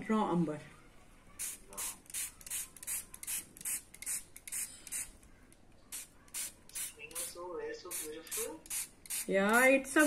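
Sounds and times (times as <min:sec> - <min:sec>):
mist bottle spraying: 0:01.4 - 0:05.1, 0:07.9 - 0:09.7.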